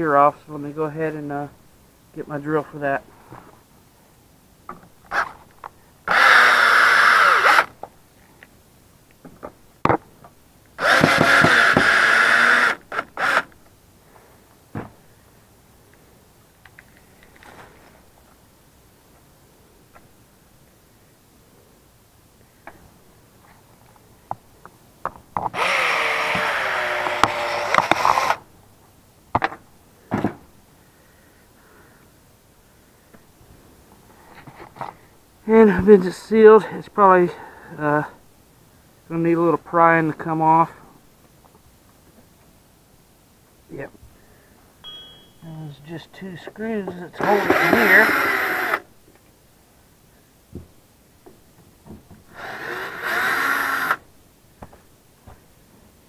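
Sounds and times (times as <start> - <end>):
power drill motor whine: 6.1 - 7.7, 10.8 - 13.5, 25.6 - 28.4, 47.2 - 48.8, 52.4 - 54.0.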